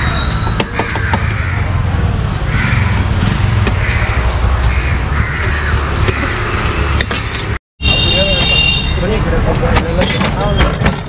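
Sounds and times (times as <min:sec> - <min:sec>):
crows cawing: 0:00.7 - 0:06.6.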